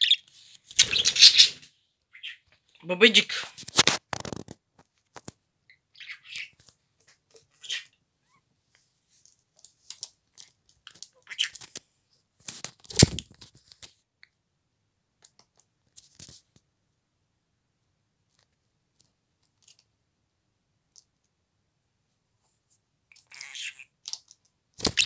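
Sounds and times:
bird feet and beak scratching plastic: 3.6 - 5.4.

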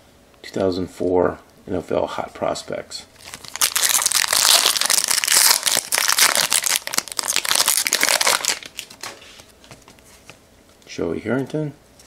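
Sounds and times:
foil wrapper tearing and crinkling: 3.2 - 9.2.

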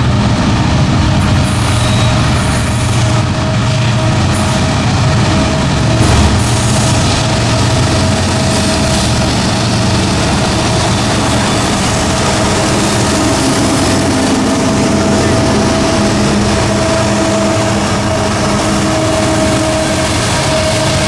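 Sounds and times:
locomotive engines passing: 0.0 - 21.0
steady whine: 0.0 - 21.0.

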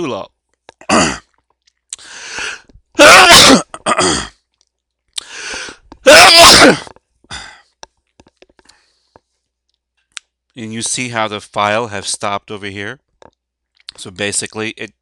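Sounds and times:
person sneezing: 0.8 - 1.3, 2.0 - 4.3, 5.2 - 7.6
quick in-breath: 2.0 - 2.7, 5.2 - 5.9.

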